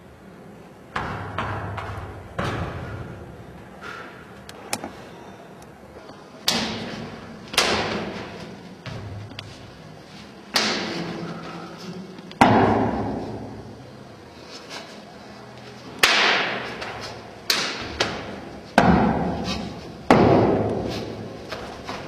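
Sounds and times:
loud echoing cracks: 0:16.0 - 0:16.8.

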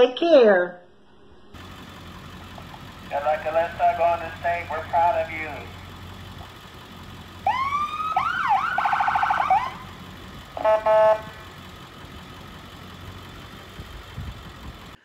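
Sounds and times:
ambulance siren wailing: 0:02.5 - 0:05.9, 0:07.3 - 0:11.6
horn blast: 0:10.5 - 0:11.6.

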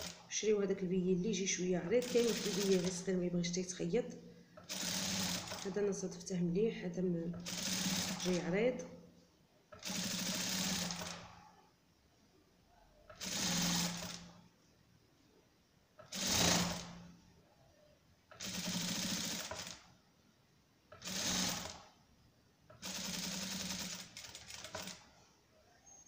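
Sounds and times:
sewing machine stitching: 0:00.0 - 0:00.3, 0:02.0 - 0:03.0, 0:04.6 - 0:05.8, 0:07.4 - 0:08.4, 0:09.7 - 0:11.4, 0:13.1 - 0:14.3, 0:16.0 - 0:17.0, 0:18.3 - 0:19.9, 0:20.9 - 0:21.9, 0:22.8 - 0:25.1.

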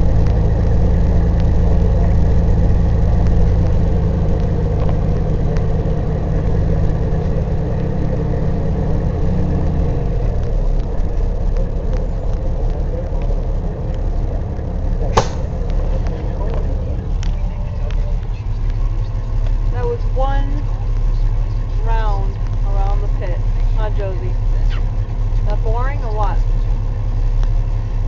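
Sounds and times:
truck diesel engine running: 0:00.0 - 0:28.0
sharp click: 0:15.2 - 0:15.5.

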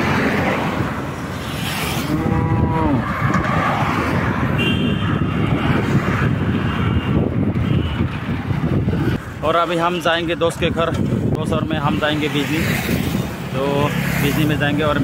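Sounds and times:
wind rush and road noise: 0:00.0 - 0:15.0
cow mooing: 0:02.1 - 0:03.0.

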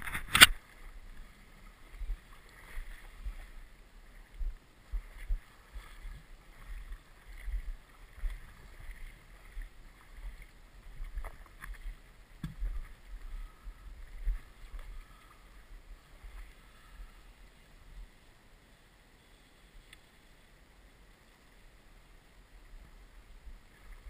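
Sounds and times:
water lapping: 0:00.0 - 0:18.4.

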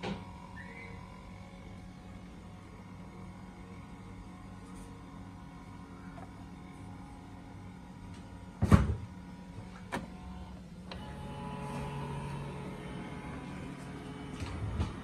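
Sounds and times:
scan motor humming: 0:09.8 - 0:15.0.

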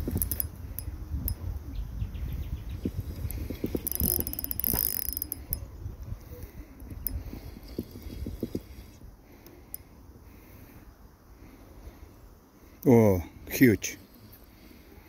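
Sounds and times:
fishing reel clicking: 0:00.0 - 0:01.4, 0:03.1 - 0:05.6, 0:06.8 - 0:08.7
wind rumbling on microphone: 0:00.0 - 0:09.2.

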